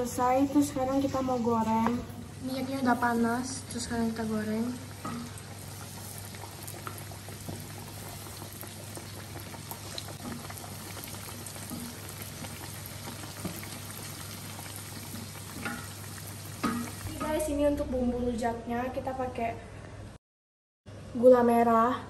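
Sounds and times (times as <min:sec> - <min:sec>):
oil bubbling and sizzling: 0:00.0 - 0:18.4
crackles and pops: 0:04.8 - 0:17.2.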